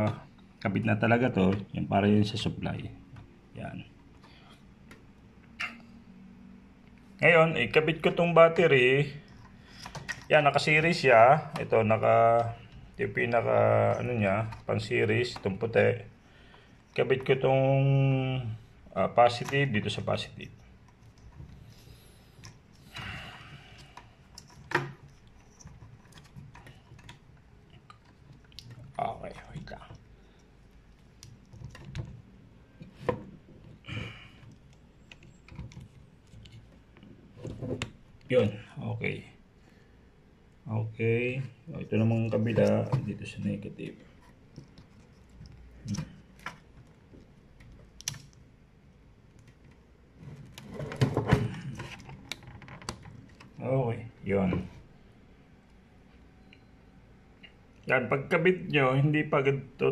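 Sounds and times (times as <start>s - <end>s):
wiring clicks and scrapes: 23.7s - 38.4s, 42.2s - 53.7s
light handling ticks: 42.2s - 50.6s.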